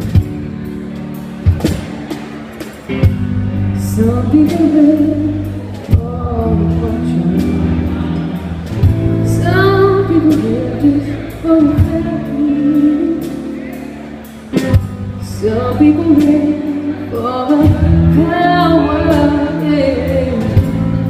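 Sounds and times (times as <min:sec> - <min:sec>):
electric bass: 0:00.0 - 0:21.0
guitar: 0:00.0 - 0:21.0
woman singing: 0:03.8 - 0:08.0, 0:09.1 - 0:13.7, 0:15.2 - 0:21.0.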